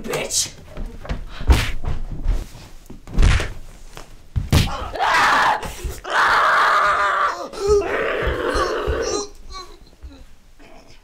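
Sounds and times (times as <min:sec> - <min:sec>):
bodies thudding on wooden floor: 0:00.8 - 0:06.1.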